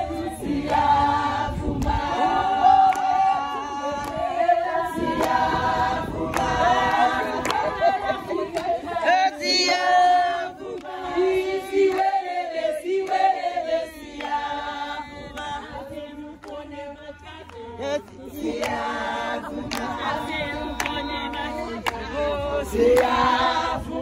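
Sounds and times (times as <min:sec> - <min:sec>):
women singing and chanting: 0:00.0 - 0:24.0
hand claps: 0:01.8 - 0:02.0, 0:02.8 - 0:03.2, 0:04.0 - 0:04.2, 0:05.1 - 0:05.4, 0:06.3 - 0:07.7, 0:08.5 - 0:08.8, 0:10.7 - 0:12.2, 0:13.0 - 0:13.3, 0:14.2 - 0:14.4, 0:16.4 - 0:16.6, 0:17.4 - 0:18.9, 0:19.7 - 0:20.1, 0:20.7 - 0:22.1, 0:22.8 - 0:23.2.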